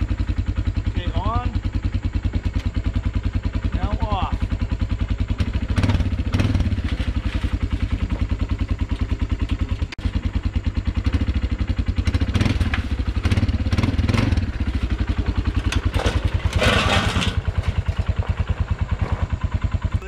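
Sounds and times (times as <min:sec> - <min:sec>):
atv engine idling: 0:00.0 - 0:20.0.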